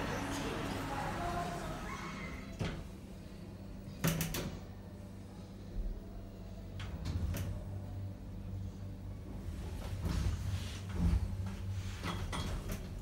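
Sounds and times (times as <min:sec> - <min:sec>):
low hum of lift travelling: 0:00.0 - 0:13.0.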